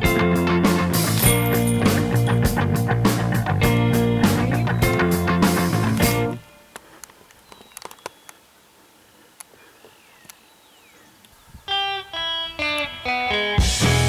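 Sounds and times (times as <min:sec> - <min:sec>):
rock band playing: 0:00.0 - 0:06.4, 0:11.8 - 0:14.0
solo guitar plucked notes: 0:00.0 - 0:06.4, 0:11.7 - 0:14.0
faint ticks: 0:09.3 - 0:09.6, 0:10.2 - 0:10.4.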